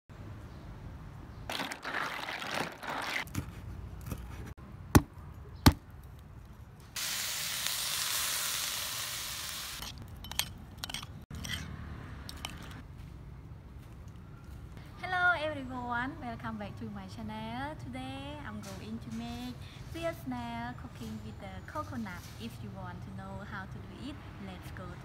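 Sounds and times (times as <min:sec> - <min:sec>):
cleaver chopping coconut: 0:05.0 - 0:05.8
steady hiss: 0:07.0 - 0:09.8.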